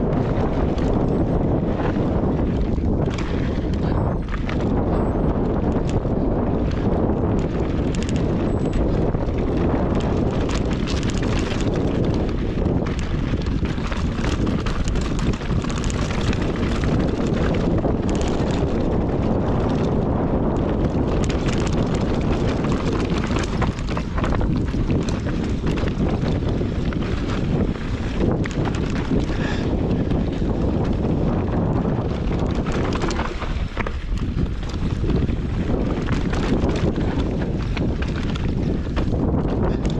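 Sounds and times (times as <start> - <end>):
bike rumble and rattles: 0.0 - 39.9
wind buffeting microphone: 0.0 - 39.9.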